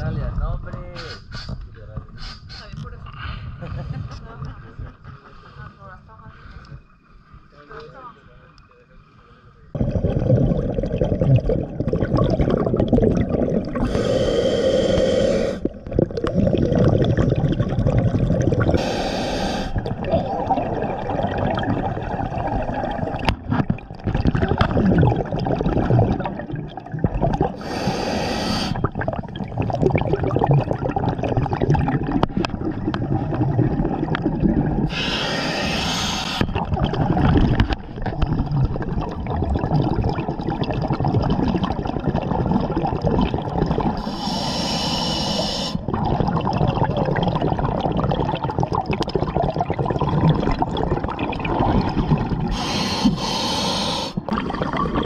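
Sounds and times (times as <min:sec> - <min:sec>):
regulator hissing inhalations: 0:01.0 - 0:01.6, 0:02.2 - 0:02.7, 0:13.8 - 0:15.7, 0:18.8 - 0:19.9, 0:27.6 - 0:28.9, 0:34.9 - 0:36.6, 0:44.0 - 0:45.8, 0:52.5 - 0:54.3
bubbling exhalations: 0:09.7 - 0:55.0.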